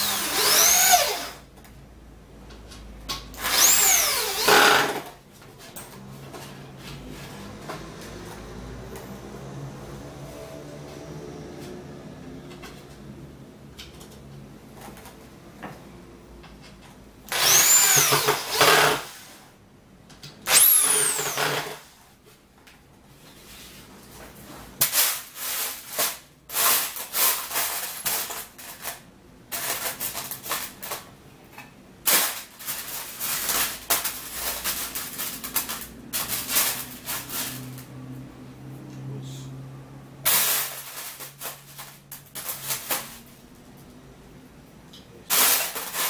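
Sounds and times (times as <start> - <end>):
electric drill driving screws: 0.0 - 1.4, 3.4 - 5.1, 17.3 - 19.1, 20.4 - 21.9
screws rattling in metal tray: 24.8 - 31.1, 32.1 - 37.8, 40.3 - 43.2, 45.3 - 46.0.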